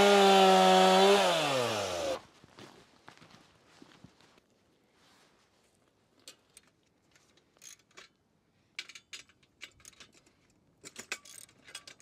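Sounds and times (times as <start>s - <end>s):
metallic clicks and rattles: 8.8s - 12.0s.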